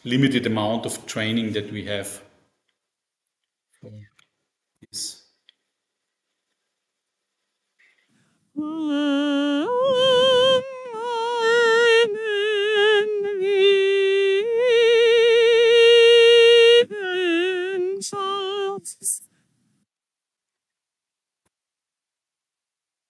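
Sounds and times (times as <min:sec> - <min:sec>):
synthesized opera singing: 0:08.6 - 0:19.2.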